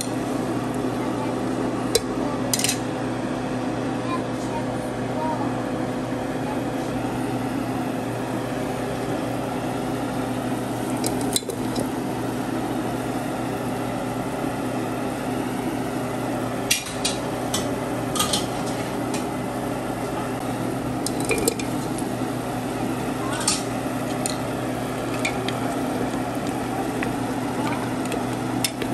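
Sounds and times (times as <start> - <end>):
kitchen hum: 0.0 - 28.9
metallic clicks and knocks on pot: 25.0 - 28.9.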